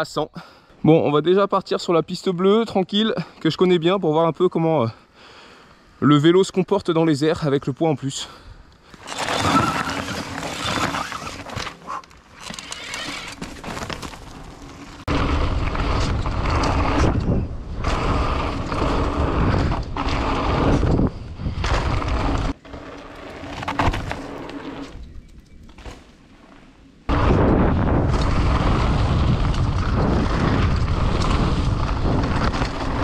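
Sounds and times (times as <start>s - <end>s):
bike rattling: 8.8s - 33.0s
tyres rolling over loose dirt: 8.9s - 33.0s
wind buffeting microphone: 15.1s - 22.6s, 27.1s - 33.0s.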